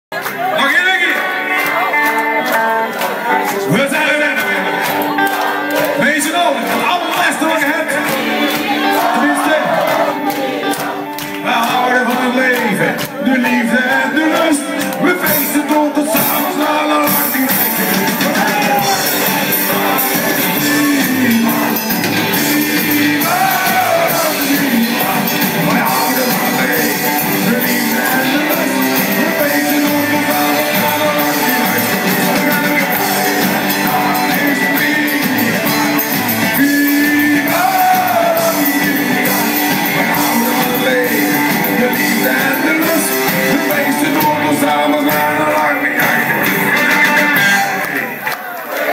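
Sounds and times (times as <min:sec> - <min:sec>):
electric guitar: 0:00.1 - 0:48.9
live band playing party music: 0:00.1 - 0:48.9
lead singer singing: 0:00.4 - 0:48.3.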